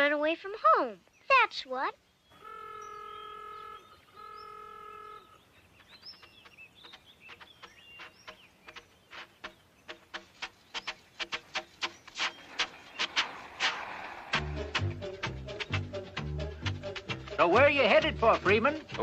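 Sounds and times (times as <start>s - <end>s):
birds chirping: 0.0s - 19.0s
vehicle horn honks: 2.4s - 5.4s.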